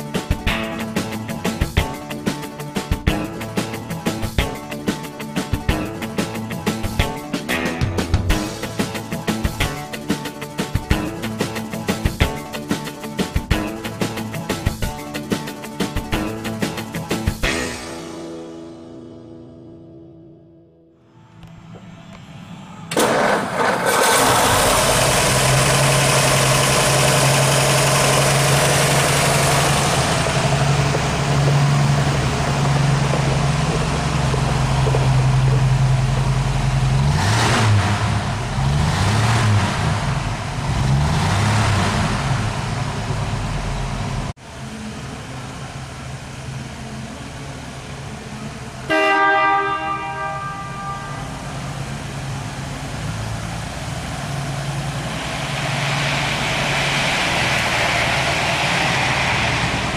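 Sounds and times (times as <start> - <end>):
car engine starting and revving: 21.3 - 48.9, 51.3 - 59.9
car horn honk: 48.9 - 51.7.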